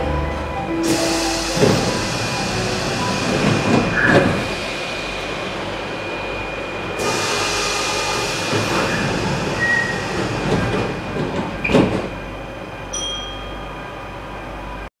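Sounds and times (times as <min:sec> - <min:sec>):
squeal: 0:09.6 - 0:10.0, 0:12.9 - 0:13.7.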